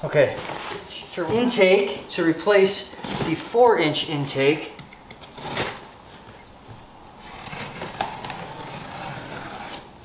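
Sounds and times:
cardboard flaps scraping: 5.2 - 6.5, 7.2 - 10.0.

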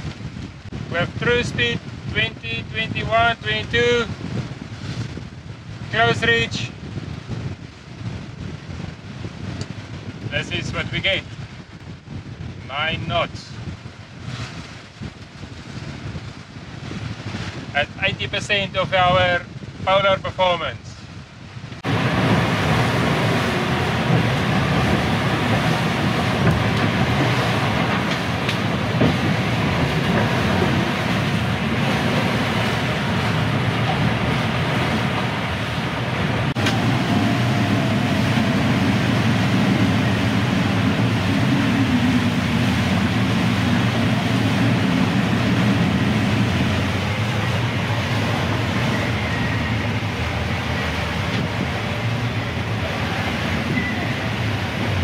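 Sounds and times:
low rumble of hull and waves: 0.0 - 55.0
wind hiss: 20.6 - 55.0.

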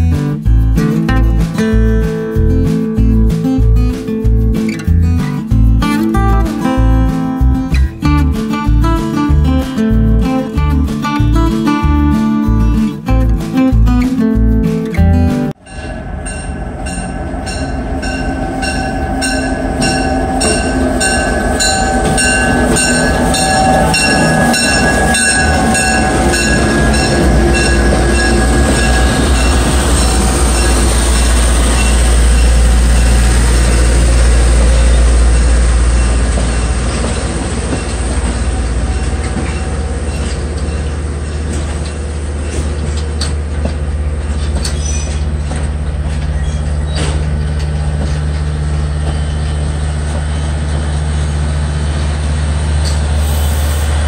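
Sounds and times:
diesel locomotive engine running: 0.0 - 54.0
passenger cars rolling by: 2.3 - 54.0
steel wheels squealing on track: 15.6 - 43.4, 44.2 - 54.0.

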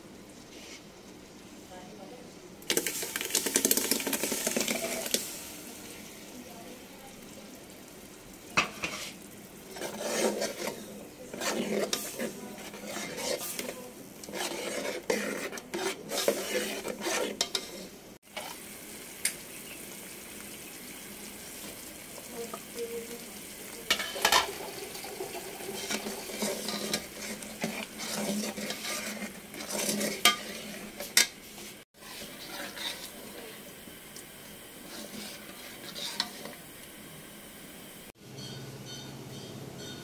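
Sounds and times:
curry simmering and sizzling: 0.0 - 38.6
ladle scraping metal pot: 2.7 - 5.3, 8.6 - 18.6, 23.9 - 33.5, 34.8 - 36.6.

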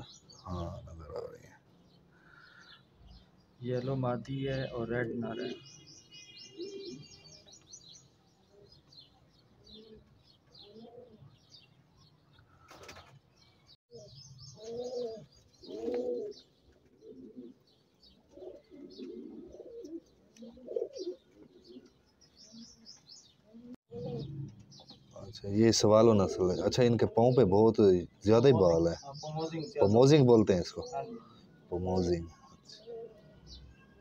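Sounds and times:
birds chirping: 0.0 - 34.0
pigeons cooing: 6.5 - 7.5, 8.5 - 11.7, 13.9 - 28.8, 29.6 - 34.0.

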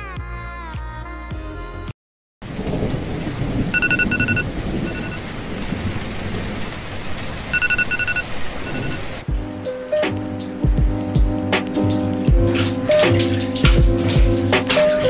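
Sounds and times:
heavy rain: 2.4 - 9.3, 12.7 - 15.0
low thunder rumble: 2.4 - 9.4
electronic alarm beeping: 3.8 - 5.2, 7.5 - 9.2.

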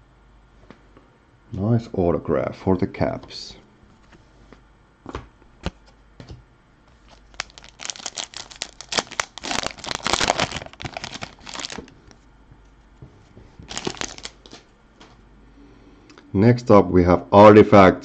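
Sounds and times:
foil wrapper crinkling: 6.9 - 12.2, 13.6 - 15.2.

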